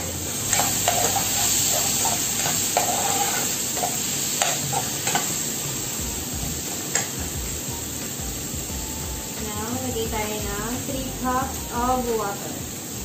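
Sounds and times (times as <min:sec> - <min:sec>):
vegetables sizzling in oil: 0:00.0 - 0:13.0
metal spoon scraping pan: 0:00.5 - 0:05.3.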